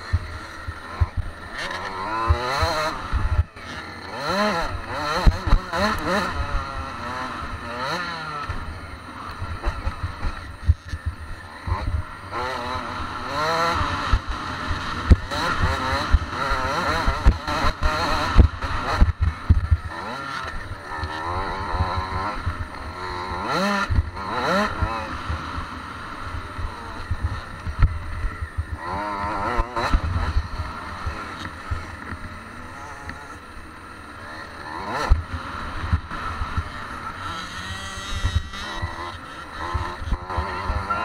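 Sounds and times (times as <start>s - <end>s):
dirt bike engine revving: 0.0s - 41.0s.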